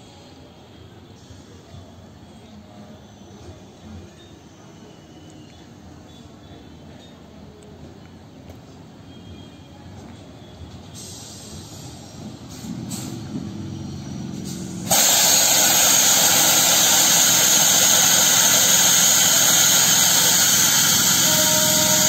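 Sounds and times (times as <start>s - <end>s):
air hissing from train: 0.0s - 2.0s, 10.8s - 22.0s
train rumbling: 9.9s - 22.0s.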